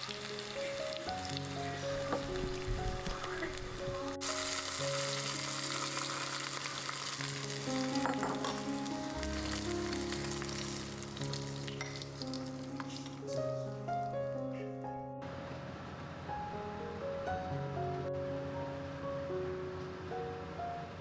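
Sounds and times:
hot oil and spices sizzling: 0.0 - 13.3
soft background music: 0.0 - 21.0.

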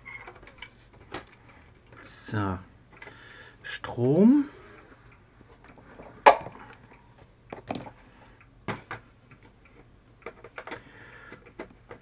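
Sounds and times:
clicks and knocks of cables handled: 0.0 - 2.0, 5.5 - 8.0, 8.6 - 12.0.

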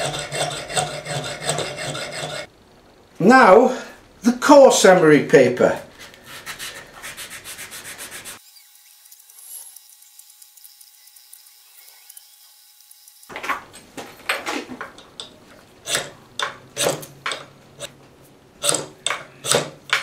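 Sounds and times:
fire steel scraping knife spine: 0.0 - 2.5.

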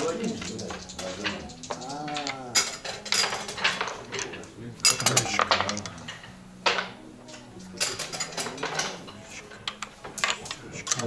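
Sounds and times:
game pieces clicking: 0.0 - 4.3.

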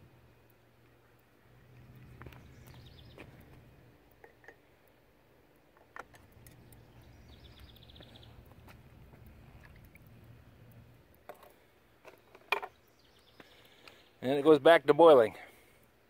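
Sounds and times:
low hum: 6.0 - 11.8.

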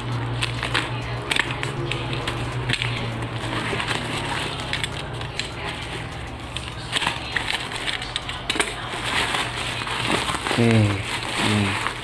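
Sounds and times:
plastic bag crinkling and tearing: 6.7 - 12.0.

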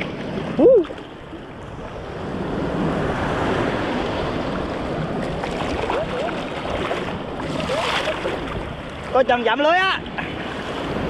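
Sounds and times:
sea surf on sandy beach: 0.0 - 11.0.

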